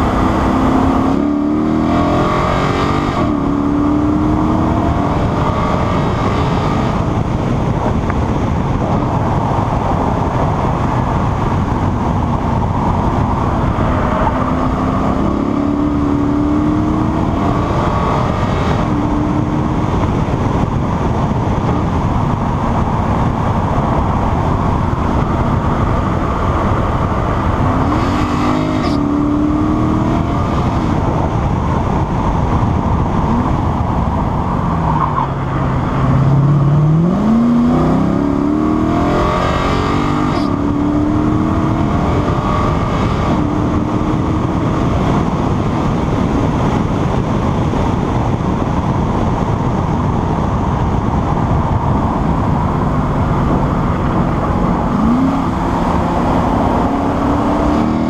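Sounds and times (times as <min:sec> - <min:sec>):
car engine revving: 0:00.0 - 0:58.0
wind and road noise: 0:00.0 - 0:58.0.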